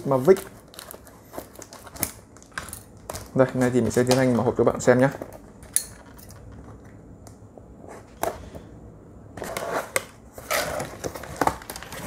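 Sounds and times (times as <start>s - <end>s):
cardboard rustling and crackling: 0.0s - 5.5s, 9.4s - 12.0s.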